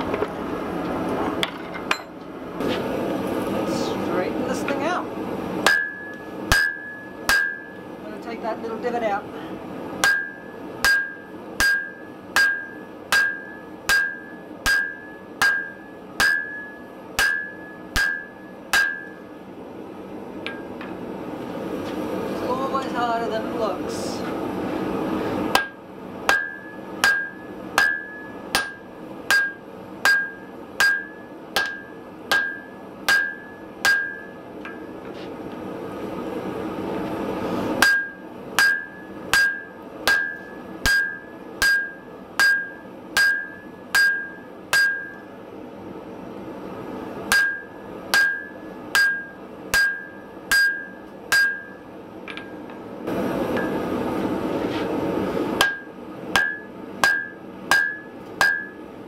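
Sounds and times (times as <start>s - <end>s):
hammer striking iron on anvil: 5.6s - 7.8s, 10.0s - 19.2s, 20.4s - 20.9s, 25.5s - 34.9s, 37.8s - 45.3s, 47.3s - 52.8s, 55.6s - 58.8s.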